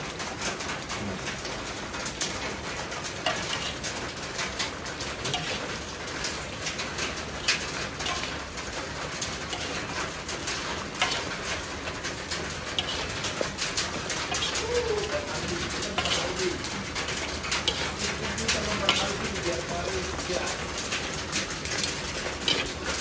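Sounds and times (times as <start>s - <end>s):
metal utensils scraping a wok: 2.0s - 23.0s.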